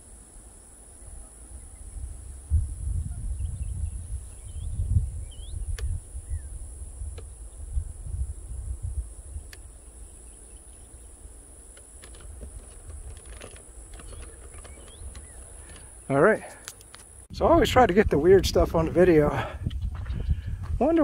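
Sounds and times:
insects droning: 0.0s - 21.0s
bird chirps: 3.0s - 7.7s, 9.3s - 11.2s, 13.8s - 16.2s.

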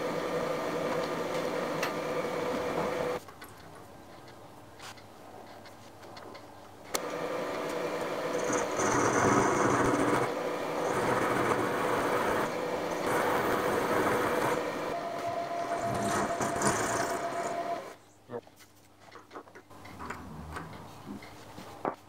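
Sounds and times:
milling machine cutting metal: 7.0s - 18.0s
steady hum: 7.8s - 18.1s.

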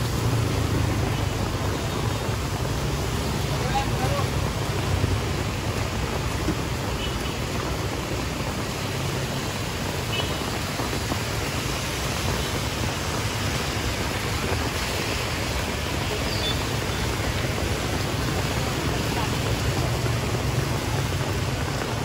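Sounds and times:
rushing outdoor noise: 0.0s - 22.0s.

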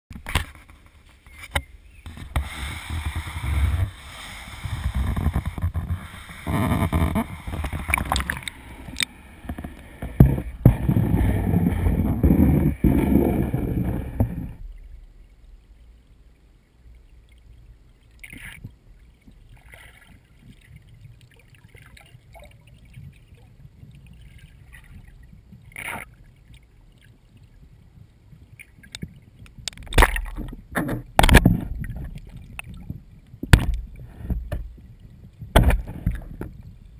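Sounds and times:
underwater hum: 0.1s - 36.9s
muffled handling rumble and knocks: 4.7s - 14.9s, 28.0s - 36.9s
underwater knocks and taps: 4.8s - 14.6s, 28.6s - 36.8s.

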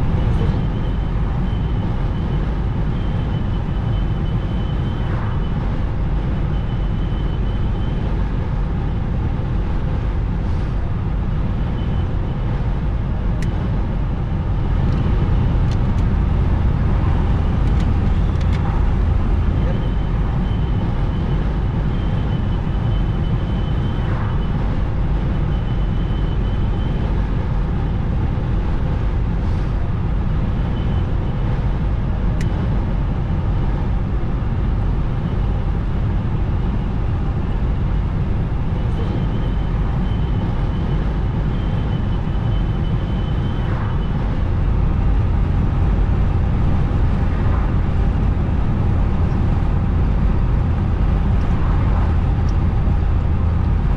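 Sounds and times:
car engine running: 0.0s - 53.9s
tyres rumbling on asphalt: 0.0s - 53.9s.

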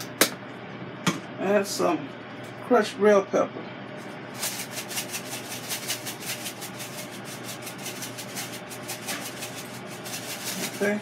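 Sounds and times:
pepper flakes rattling in plastic bag: 4.3s - 11.0s.

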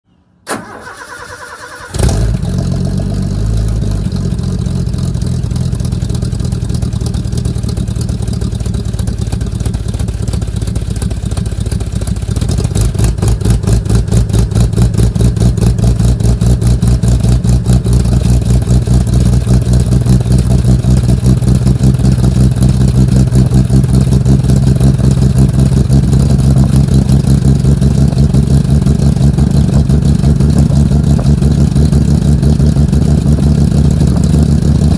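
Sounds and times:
engine running exhaust pulse: 2.0s - 34.9s.

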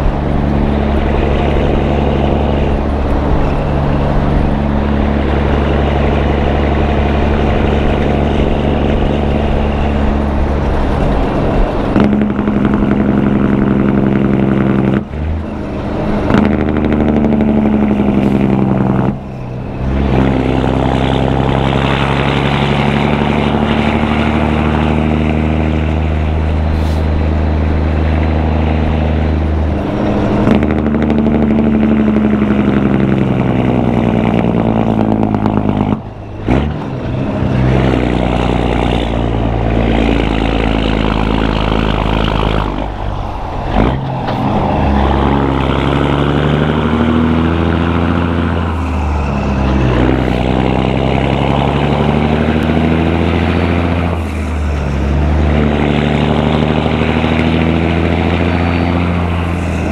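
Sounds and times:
diesel truck exhaust note: 0.0s - 59.9s.

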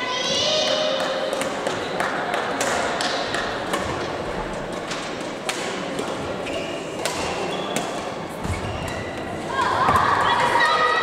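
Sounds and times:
rackets striking shuttlecocks: 4.8s - 10.3s.

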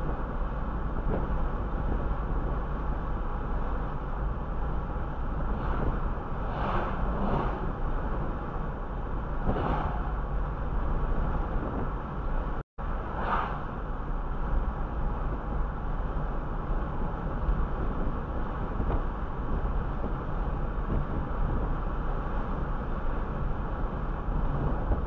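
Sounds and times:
car road and tyre noise: 0.0s - 25.0s
oncoming car whooshing past: 5.4s - 8.6s, 9.4s - 10.4s, 13.1s - 13.8s.

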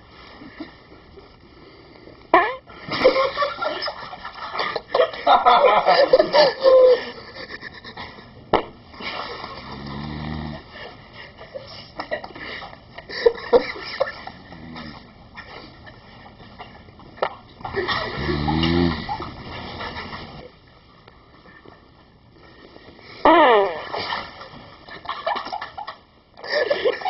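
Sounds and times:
people laughing: 2.9s - 8.4s, 11.2s - 14.8s, 17.6s - 20.5s, 24.9s - 27.0s.

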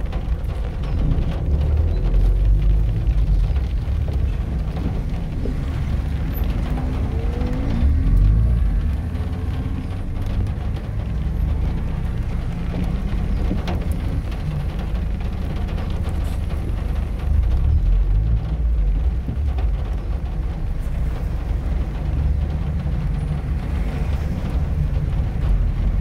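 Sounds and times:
car road and engine rumble: 0.0s - 26.0s.

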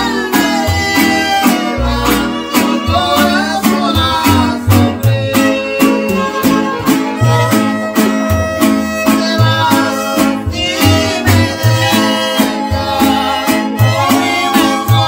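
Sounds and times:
acoustic bass notes: 0.0s - 15.0s
strummed guitars: 0.0s - 15.0s
violins playing melody: 6.0s - 12.7s.

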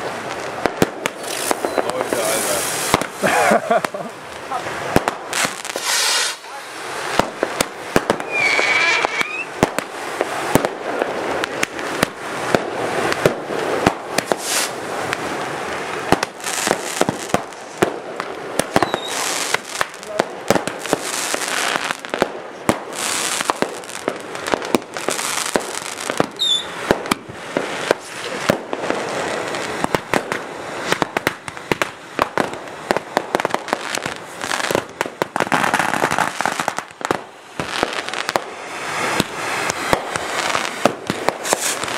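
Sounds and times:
fireworks bangs and crackling: 0.0s - 41.9s
fireworks hissing: 0.0s - 41.9s
falling whistles: 8.2s - 9.5s, 18.8s - 19.2s, 26.4s - 26.8s.

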